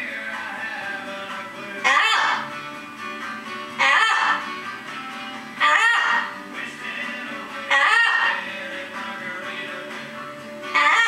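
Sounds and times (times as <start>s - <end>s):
faint guitar music: 0.0s - 11.0s
parrot calling loudly: 1.8s - 2.5s, 3.7s - 4.5s, 5.5s - 6.4s, 7.7s - 8.4s, 10.7s - 11.0s.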